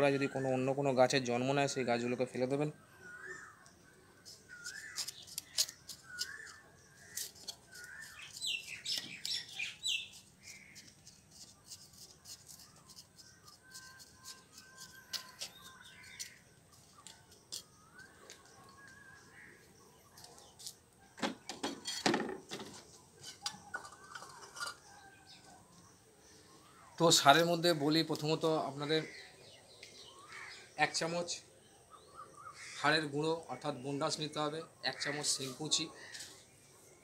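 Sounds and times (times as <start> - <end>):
small birds chirping: 0.0 - 37.0
knife scraping dry soil: 4.2 - 18.8, 20.1 - 20.8, 22.7 - 25.1.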